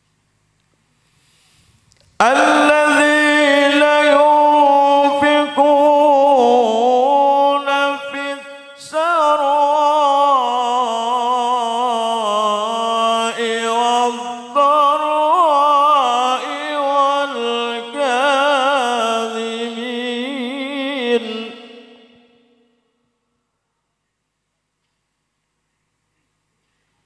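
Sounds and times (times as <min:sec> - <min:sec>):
man reciting melodically into microphone: 0:02.2 - 0:22.6.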